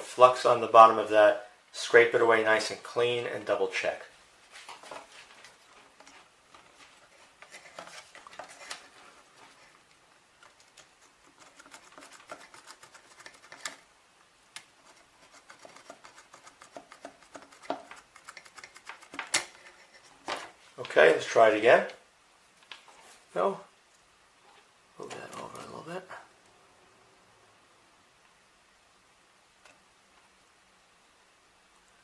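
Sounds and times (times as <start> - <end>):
circuit board clicks and scratches: 10.4 - 13.8, 14.6 - 20.0.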